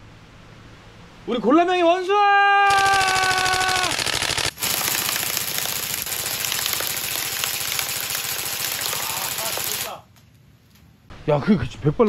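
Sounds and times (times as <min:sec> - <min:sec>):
man shouting: 0:01.7 - 0:04.0
airsoft rifle full auto fire: 0:02.7 - 0:10.0.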